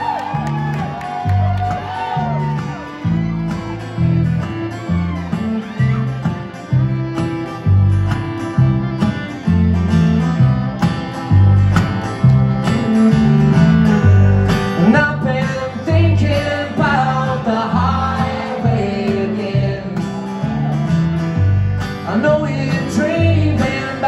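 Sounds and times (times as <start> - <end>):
strummed acoustic guitar: 0.3 - 24.0
plucked upright bass: 1.5 - 24.0
fiddle sliding melody: 2.2 - 15.2.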